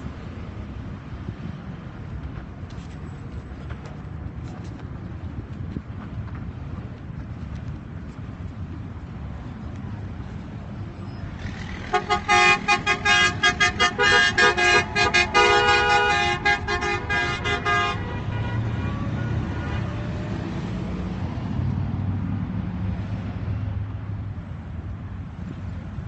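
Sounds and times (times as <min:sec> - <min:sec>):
wind on microphone: 0:00.0 - 0:18.1
traffic rumble: 0:00.0 - 0:26.0
car horn honking: 0:11.8 - 0:20.0.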